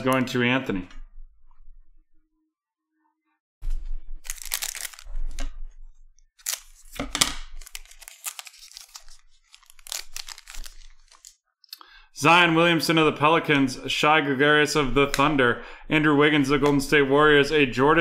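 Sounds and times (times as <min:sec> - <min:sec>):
foil wrapper crinkling and tearing: 0:04.2 - 0:05.5, 0:06.4 - 0:11.4.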